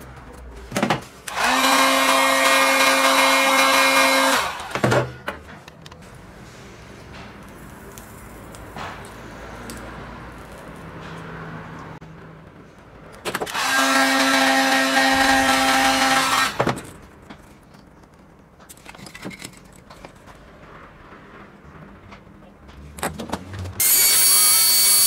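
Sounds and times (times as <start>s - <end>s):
heat gun blowing: 1.3s - 4.8s, 13.5s - 16.6s, 23.8s - 25.0s.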